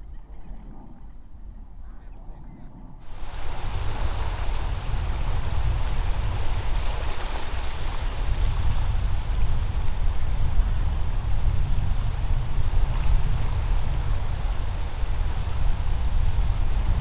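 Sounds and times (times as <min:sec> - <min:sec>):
floodwater rushing: 0:03.0 - 0:10.2.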